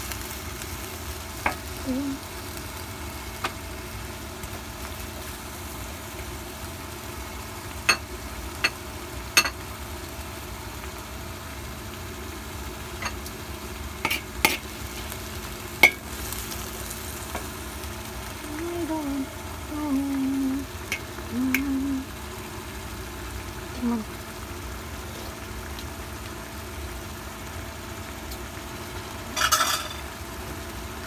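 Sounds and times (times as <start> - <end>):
food sizzling in a pan: 0.0 - 31.0
utensil clinking against pan: 29.4 - 30.0.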